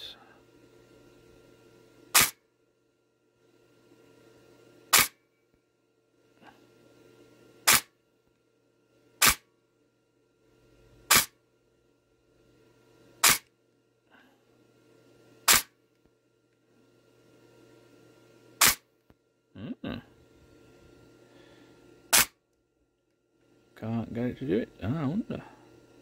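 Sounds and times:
airsoft gearbox single shots: 2.2s - 2.4s, 4.9s - 5.2s, 7.7s - 7.9s, 9.2s - 9.4s, 11.1s - 11.4s, 13.2s - 13.4s, 15.5s - 15.7s, 18.6s - 18.8s, 22.1s - 22.4s.

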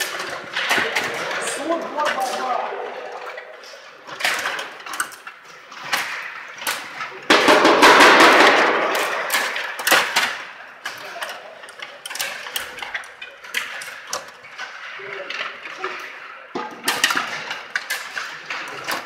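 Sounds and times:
plastic clacks of table hockey: 3.7s - 19.0s
loud noisy rattle: 7.3s - 9.4s.

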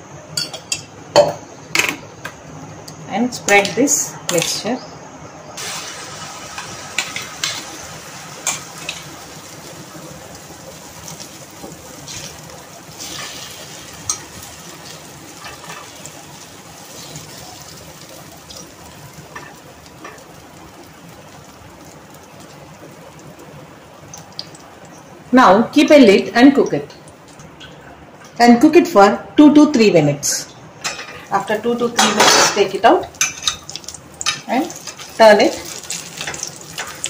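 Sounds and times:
omelette sizzling in oil: 5.6s - 27.6s, 30.8s - 37.0s.

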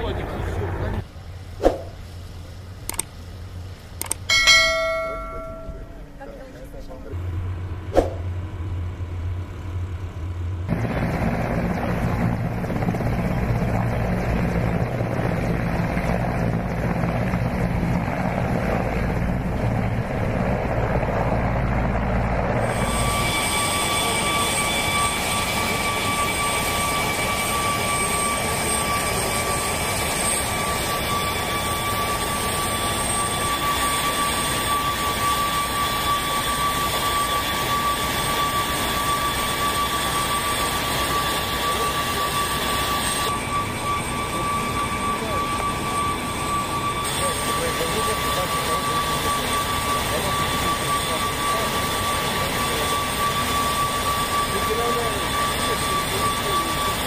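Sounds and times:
helicopters flying over: 0.0s - 57.0s
jet engines whining: 0.0s - 57.0s.

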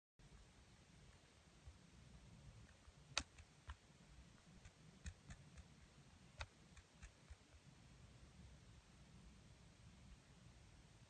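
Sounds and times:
faint irregular clicks: 2.6s - 7.7s.

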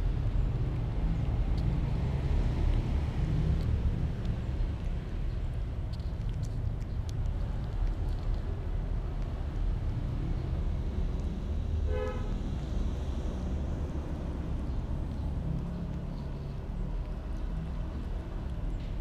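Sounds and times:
distant traffic rumble: 0.0s - 19.0s
car horn toot: 11.9s - 12.3s.

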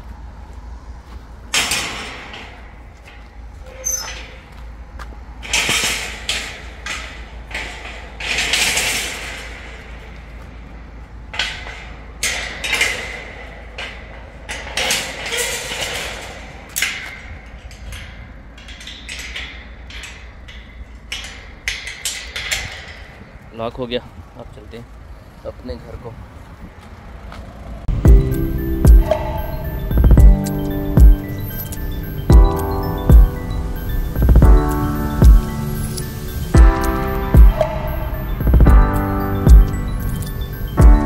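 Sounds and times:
metal gate clanking and rattling: 1.5s - 24.0s, 27.8s - 41.0s.

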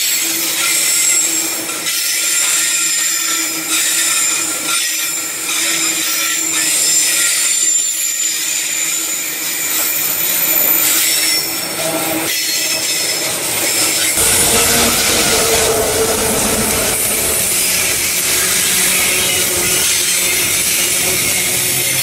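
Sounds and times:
train wheels squealing on rails: 0.0s - 22.0s
rolling wagons rumble: 14.2s - 19.9s.

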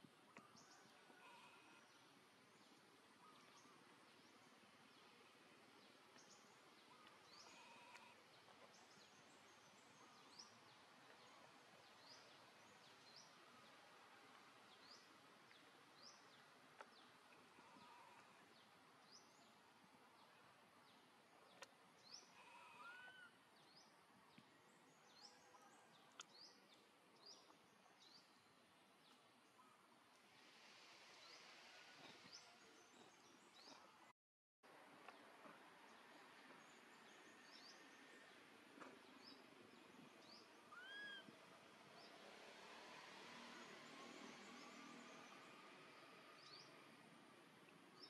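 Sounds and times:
low steady hiss: 0.0s - 48.0s
faint clicks: 21.5s - 21.8s, 26.1s - 26.4s
lower calls: 40.7s - 41.4s.

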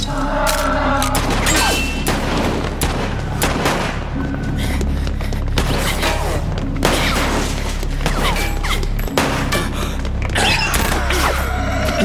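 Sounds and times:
tense action music with low bass: 0.0s - 12.0s
rapid gunshots: 1.2s - 4.1s.

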